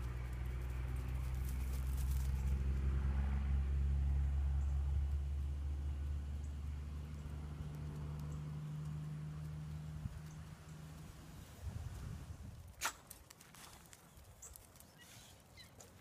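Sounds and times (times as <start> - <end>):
faint clicks and crackles: 7.0 - 11.1, 12.5 - 16.0.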